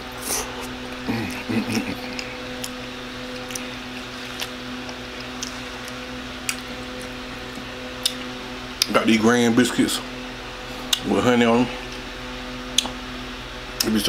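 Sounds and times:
man chewing: 0:00.0 - 0:09.0, 0:10.6 - 0:11.1, 0:11.8 - 0:13.0
steady low hum: 0:00.0 - 0:14.0
man humming: 0:00.1 - 0:02.6.

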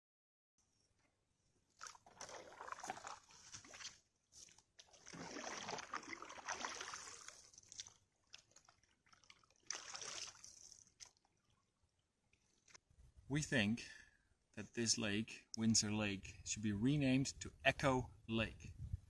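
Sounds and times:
canoe paddle strokes in water: 0:01.8 - 0:11.2.

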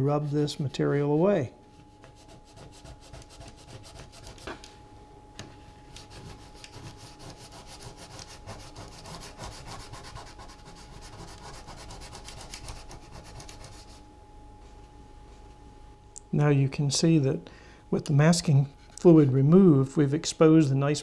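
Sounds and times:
fingertip rubbing paper: 0:01.9 - 0:04.5, 0:05.9 - 0:14.0.

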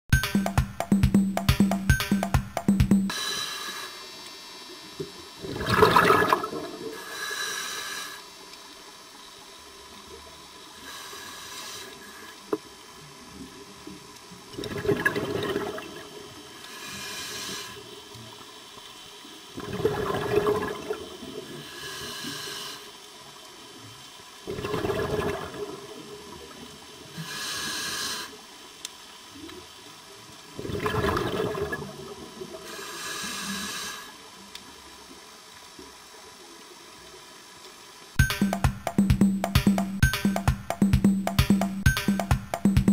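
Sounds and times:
scuba regulator inhalation hiss: 0:03.1 - 0:05.0, 0:06.8 - 0:08.6, 0:10.6 - 0:12.5, 0:16.1 - 0:18.4, 0:21.4 - 0:23.2, 0:27.0 - 0:28.8, 0:32.6 - 0:34.4
exhaled bubbles rushing: 0:05.4 - 0:06.9, 0:14.6 - 0:16.0, 0:19.6 - 0:21.0, 0:24.5 - 0:25.9, 0:30.6 - 0:32.0.

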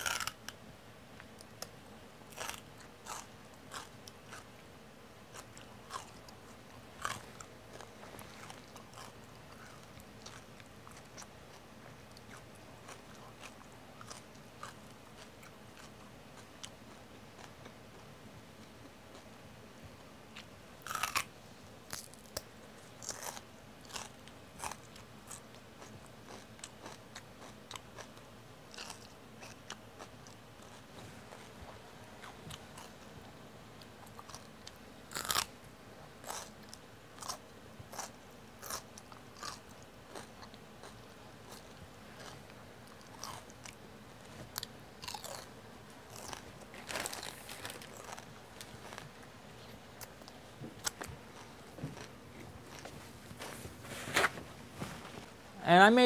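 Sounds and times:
celery crunching: 0:00.0 - 0:00.5, 0:05.3 - 0:16.7, 0:20.4 - 0:21.3, 0:33.8 - 0:35.5, 0:36.2 - 0:55.3.

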